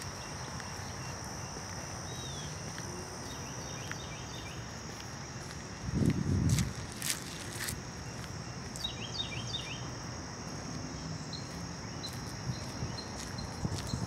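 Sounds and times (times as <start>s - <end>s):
insects droning: 0.0s - 14.0s
low rumble on microphone: 5.8s - 7.0s.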